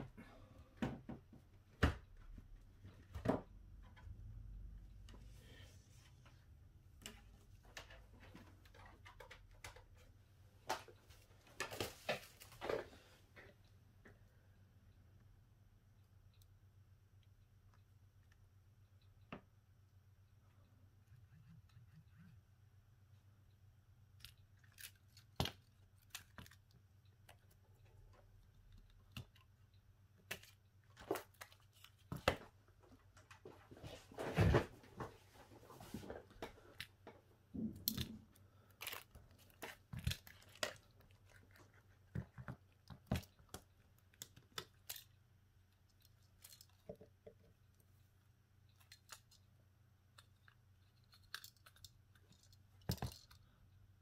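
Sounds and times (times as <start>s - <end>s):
small tools clicking and tapping: 50.2s - 53.5s.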